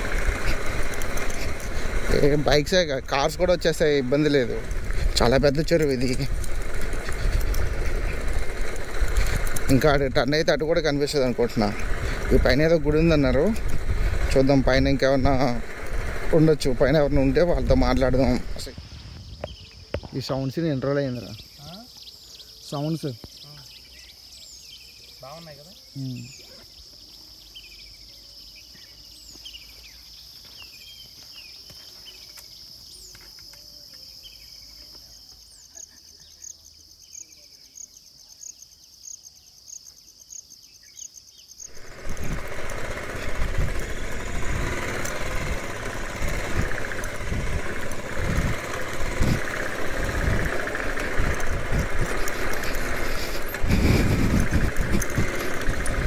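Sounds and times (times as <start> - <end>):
motorcycle engine: 0.0 - 18.8, 41.6 - 56.0
wind buffeting microphone: 0.0 - 20.1, 41.7 - 56.0
birds chirping: 0.0 - 56.0
high insect drone: 0.0 - 56.0.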